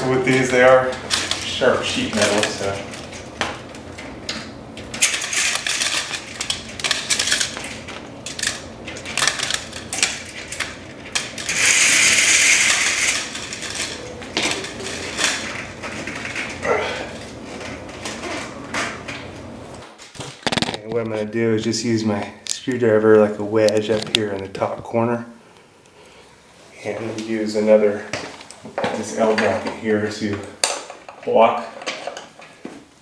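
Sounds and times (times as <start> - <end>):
blind headrail clicking and clattering: 0.0 - 21.1
metal scrape: 11.4 - 16.5.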